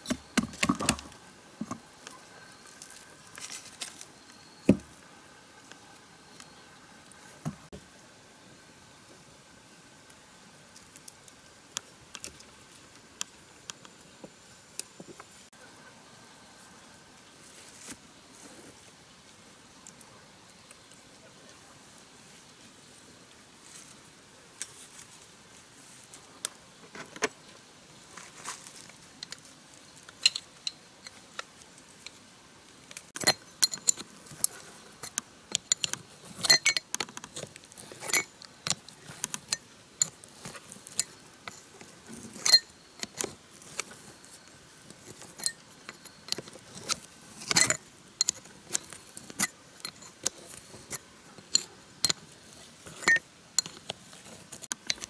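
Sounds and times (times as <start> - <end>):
wrench clinking on metal: 33.2 - 34.0, 35.0 - 36.9, 42.4 - 43.2.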